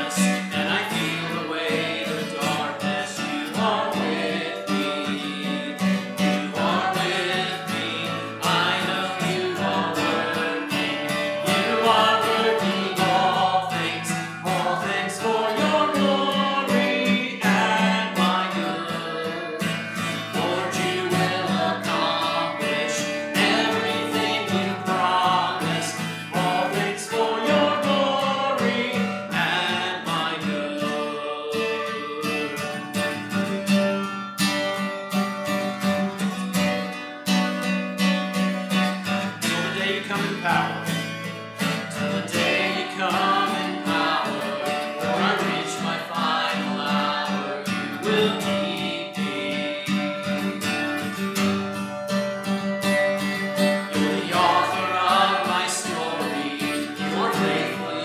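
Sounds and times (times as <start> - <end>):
person singing worship song: 0.0 - 32.8, 41.9 - 50.6, 53.9 - 58.0
acoustic guitar strumming: 0.0 - 58.0.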